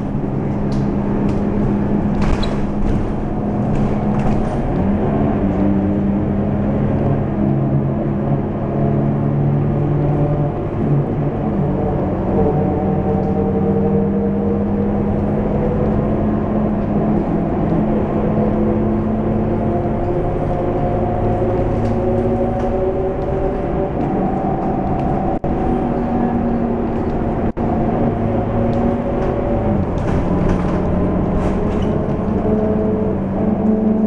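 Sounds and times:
bus diesel engine humming: 0:00.0 - 0:34.0.

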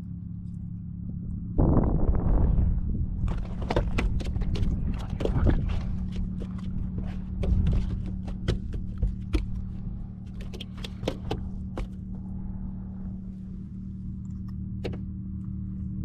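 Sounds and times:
sharp clicks and knocks: 0:03.3 - 0:12.1, 0:14.2 - 0:15.1.

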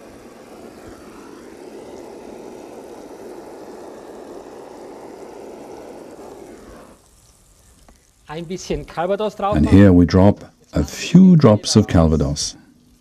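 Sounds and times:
gas torch flame rushing: 0:00.0 - 0:10.4.

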